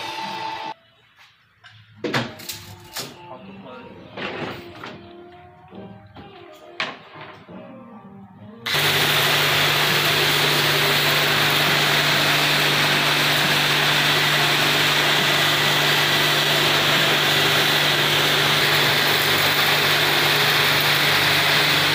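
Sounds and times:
air compressor running: 0.0s - 0.8s, 8.7s - 21.9s.

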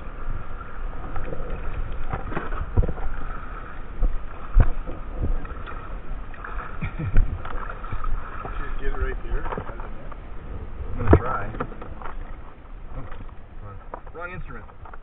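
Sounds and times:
water noise: 0.0s - 15.0s
wind: 0.0s - 15.0s
gear knocking on plastic kayak: 3.9s - 5.9s.

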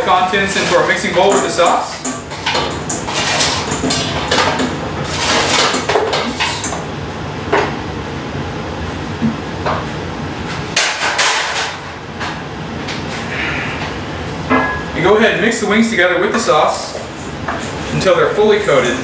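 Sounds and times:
tongs scraping on metal: 0.5s - 6.8s.

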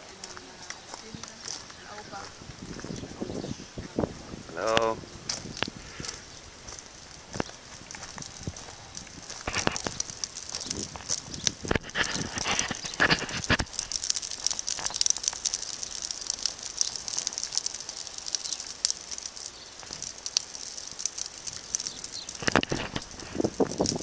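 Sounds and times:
steady high hiss: 0.0s - 24.0s
wood fire crackling: 0.0s - 24.0s.

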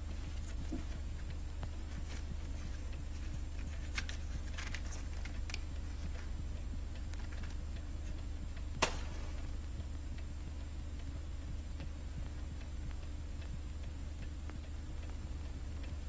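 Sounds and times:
low hum of film soundtrack: 0.0s - 16.0s
sharp click: 8.8s - 9.2s.

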